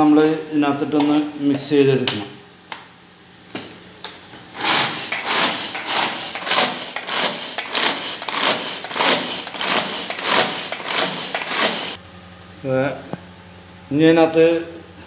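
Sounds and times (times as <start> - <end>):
vegetable chopper chopping: 4.6 - 12.0.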